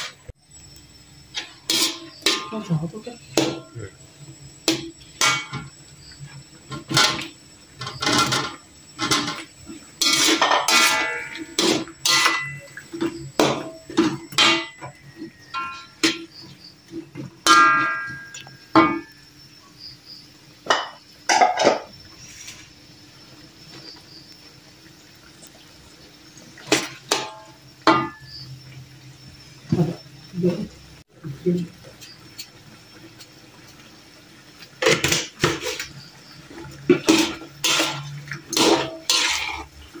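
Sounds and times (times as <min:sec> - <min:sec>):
spatula scraping wok: 0:01.3 - 0:03.7, 0:04.7 - 0:19.1, 0:21.3 - 0:22.8, 0:34.8 - 0:40.0
metal spatula clanking in wok: 0:01.3 - 0:03.8, 0:04.7 - 0:05.7, 0:06.7 - 0:16.5, 0:17.4 - 0:19.1, 0:26.7 - 0:28.4, 0:36.8 - 0:39.8.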